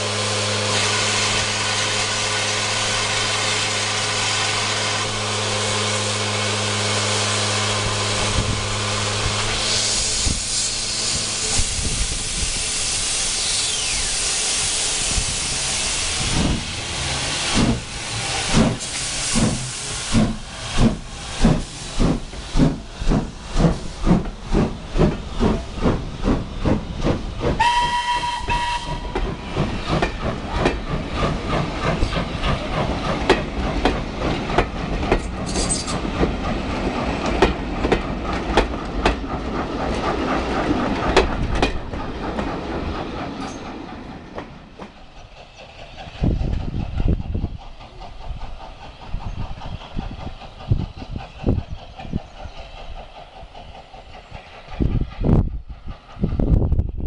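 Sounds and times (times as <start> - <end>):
steam hissing: 0.0 - 43.6, 44.5 - 56.6
steam locomotive exhaust beats: 0.0 - 57.0
train wheels rattling over rail joints: 0.7 - 57.0
steam whistle blast: 27.6 - 29.2.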